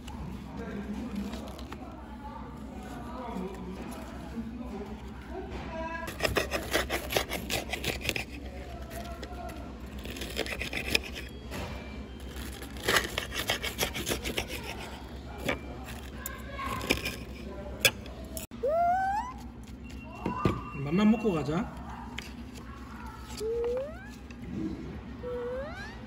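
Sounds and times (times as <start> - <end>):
knife sawing through breaded cutlet: 6.1 - 8.4, 10.0 - 11.3, 12.8 - 15.1.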